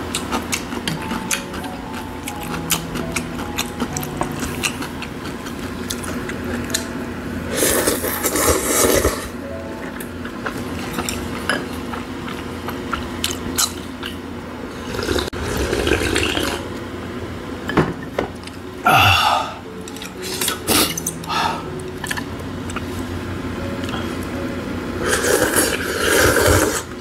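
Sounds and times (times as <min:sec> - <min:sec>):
person chewing and slurping: 0:00.0 - 0:06.9, 0:07.5 - 0:09.4, 0:10.2 - 0:16.7, 0:19.9 - 0:23.0, 0:25.0 - 0:27.0.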